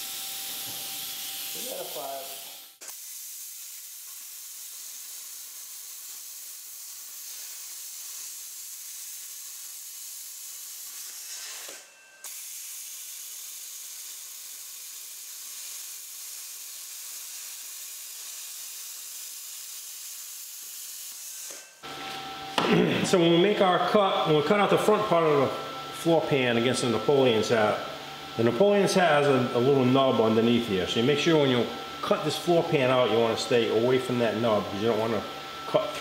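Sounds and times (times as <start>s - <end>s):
plasma cutter hissing: 0.0s - 21.6s.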